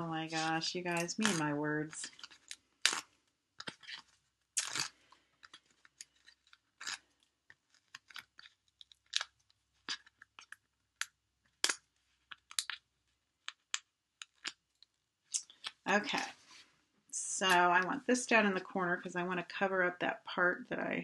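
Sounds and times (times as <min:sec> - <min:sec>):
foam adhesive dots being peeled: 0:02.0 - 0:15.8
paper and plastic crackles: 0:03.6 - 0:10.7.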